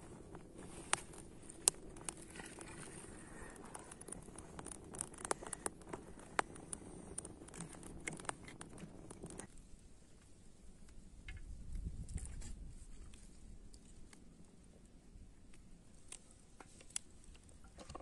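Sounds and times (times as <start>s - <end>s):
wood fire crackling: 0.0s - 11.0s.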